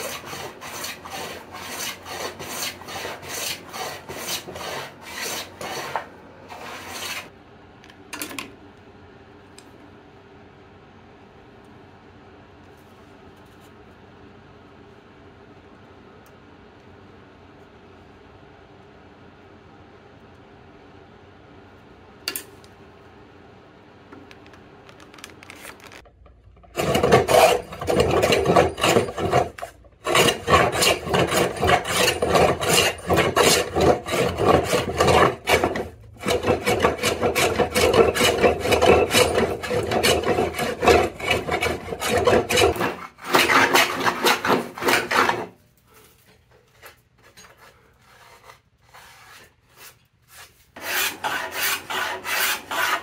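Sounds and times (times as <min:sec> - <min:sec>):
plane shaving wood: 0:00.0 - 0:07.3, 0:26.7 - 0:45.6, 0:47.5 - 0:53.0.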